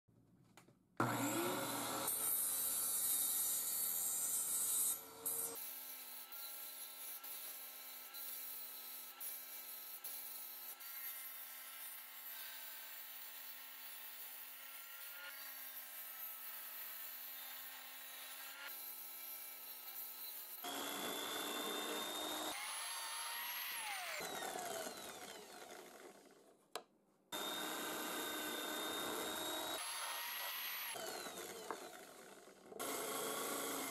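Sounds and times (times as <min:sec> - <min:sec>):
table saw cutting wood: 0:01.0 - 0:33.9
drill press boring into wood: 0:20.6 - 0:26.4, 0:27.4 - 0:33.9.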